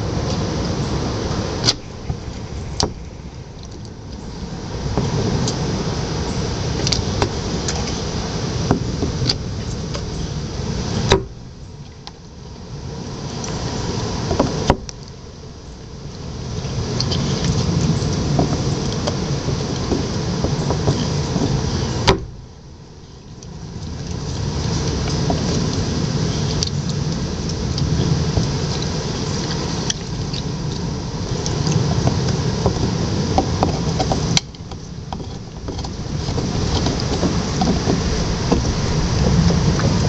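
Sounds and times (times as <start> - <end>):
low rumble: 0.0 - 40.0
teeth scraping on coconut shell: 33.4 - 40.0.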